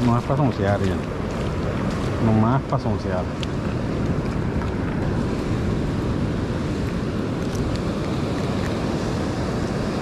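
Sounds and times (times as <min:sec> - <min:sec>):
ocean surf on beach: 0:00.0 - 0:10.0
wind rumbling on microphone: 0:00.0 - 0:10.0.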